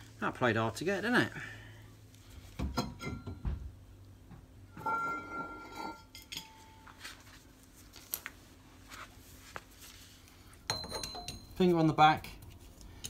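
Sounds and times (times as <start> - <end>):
ringing metal clatter: 10.7 - 11.7.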